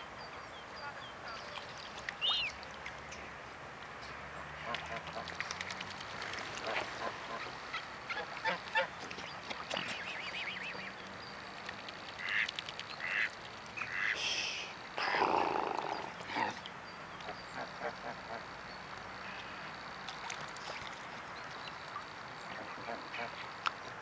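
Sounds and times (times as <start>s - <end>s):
swans honking: 6.3s - 9.0s, 12.2s - 14.2s.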